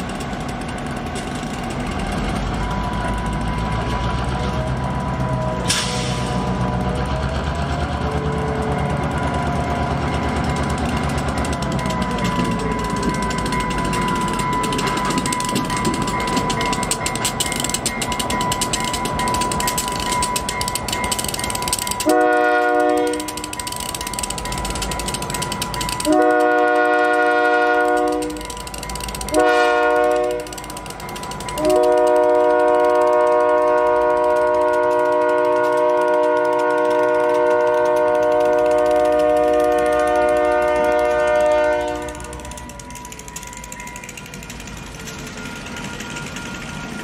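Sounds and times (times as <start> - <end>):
train rolling clattering rumble: 0.0 - 47.0
locomotive air horn: 5.5 - 7.0, 22.0 - 23.6, 26.0 - 28.5, 29.3 - 30.6, 31.6 - 42.7.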